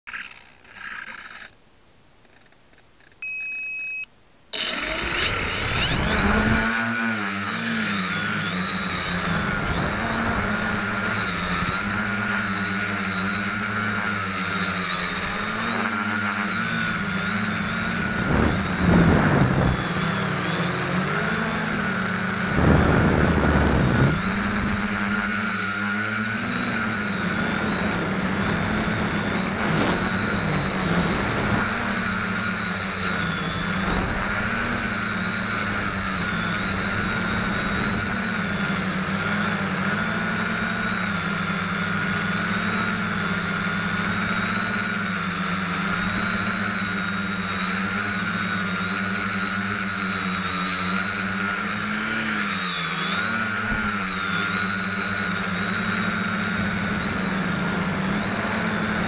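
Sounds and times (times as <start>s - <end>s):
quadcopter motors whining: 0.1s - 1.6s, 2.2s - 59.0s
short electronic beep: 3.2s - 4.8s
loud bursts of noise: 4.5s - 59.0s.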